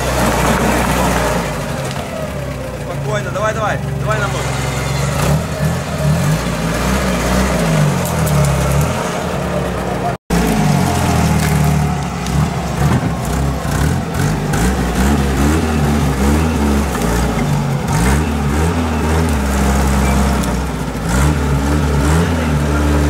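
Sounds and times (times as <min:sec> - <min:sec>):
off-road vehicle engine revving: 0:00.0 - 0:23.0.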